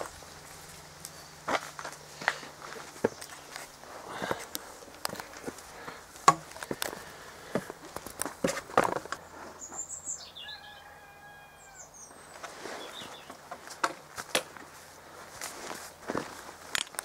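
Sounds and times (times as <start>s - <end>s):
sharp crunches and clicks: 0.0s - 9.2s, 13.3s - 17.0s
footsteps through long grass: 0.0s - 9.6s, 12.3s - 17.0s
small bird chirping: 9.2s - 10.9s, 11.6s - 13.4s.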